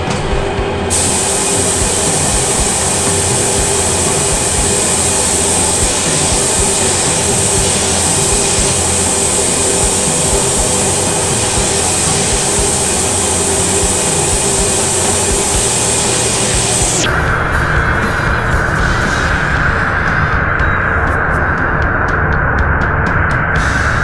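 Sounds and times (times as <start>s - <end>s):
music: 0.0s - 24.0s
spray gun hissing: 0.9s - 17.1s.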